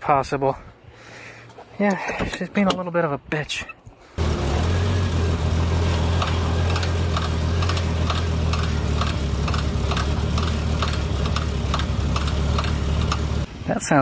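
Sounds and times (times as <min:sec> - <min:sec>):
car engine idling: 0:04.2 - 0:13.5
light regular ticking: 0:06.2 - 0:13.5.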